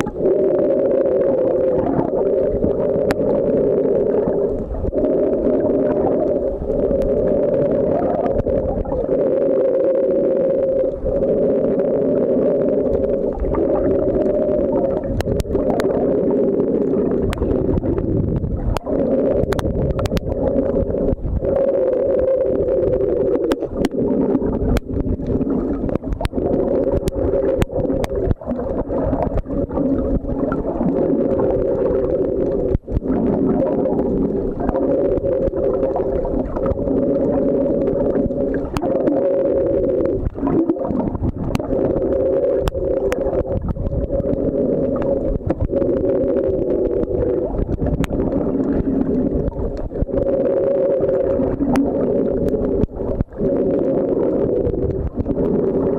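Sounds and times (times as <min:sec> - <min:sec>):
underwater motor droning hum: 0:00.0 - 0:55.9.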